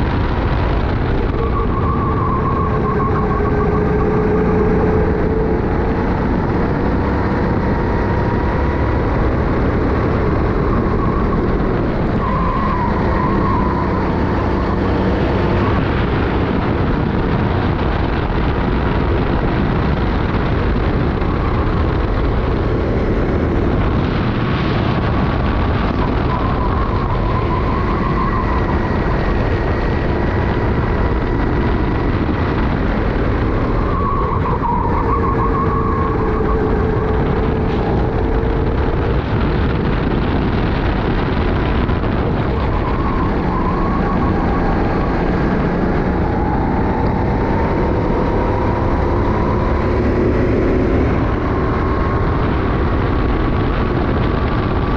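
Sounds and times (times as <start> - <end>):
kart engine revving: 0.0 - 54.9
road and wind noise: 0.0 - 54.9.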